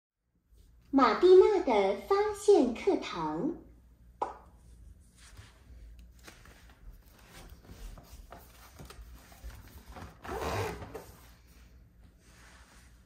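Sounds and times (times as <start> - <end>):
paper rustling: 5.1 - 10.2.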